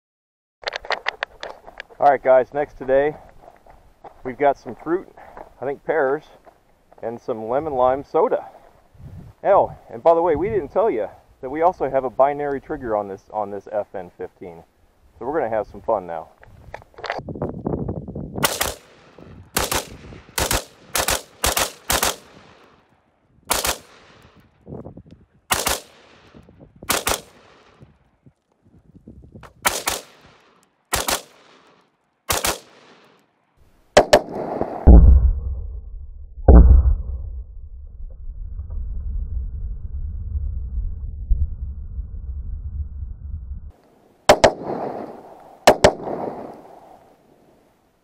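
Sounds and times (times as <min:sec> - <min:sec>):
rifle shots: 0:18.4 - 0:22.8, 0:23.5 - 0:24.4, 0:25.5 - 0:27.8, 0:29.5 - 0:33.3, 0:34.0 - 0:35.1, 0:44.3 - 0:47.0
steady low rumble: 0:33.8 - 0:47.5.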